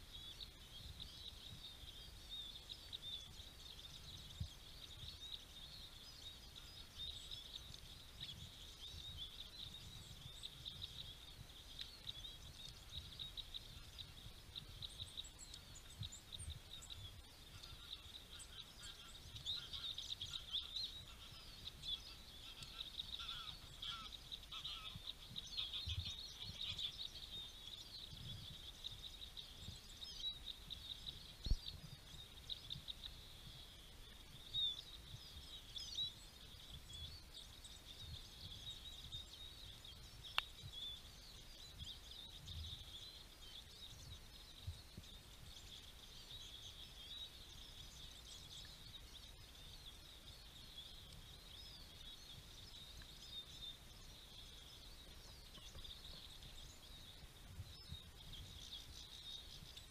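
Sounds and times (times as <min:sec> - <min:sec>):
songbirds chirping: 0:00.0 - 0:59.9.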